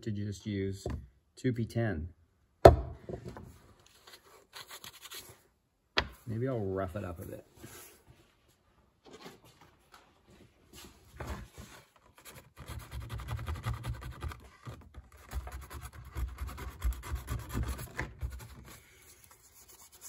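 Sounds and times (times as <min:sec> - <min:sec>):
sandpaper rubbing on plastic: 0:12.1 - 0:20.0.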